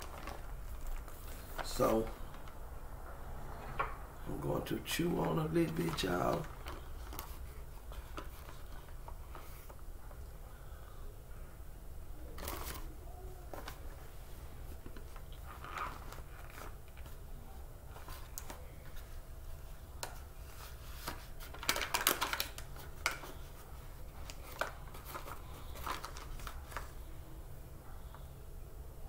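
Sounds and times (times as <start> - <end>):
plastic bag crinkling: 0.0 - 2.6, 4.3 - 9.8, 12.3 - 17.2, 20.0 - 27.1.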